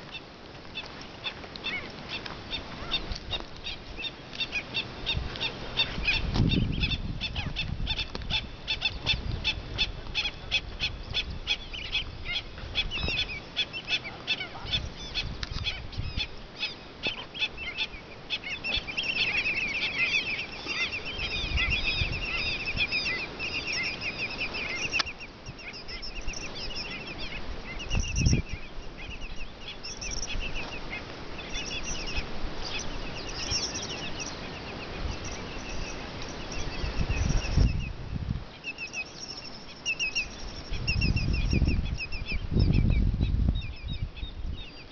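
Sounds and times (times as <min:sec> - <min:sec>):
wetland birds calling: 0:00.0 - 0:44.9.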